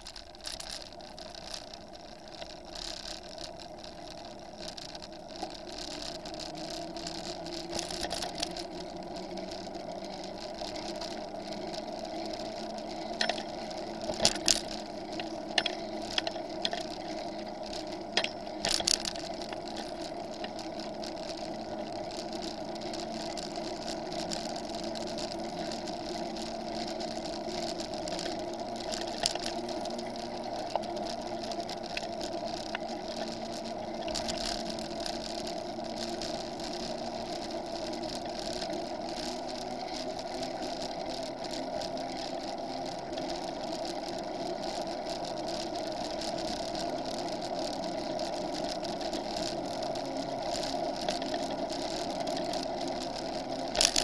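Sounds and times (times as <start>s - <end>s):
bicycle wheels whirring on asphalt: 0.0s - 54.0s.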